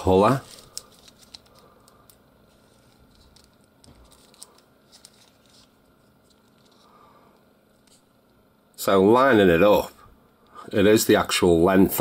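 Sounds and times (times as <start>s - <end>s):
plastic figures clicking and rubbing: 0.0s - 6.8s.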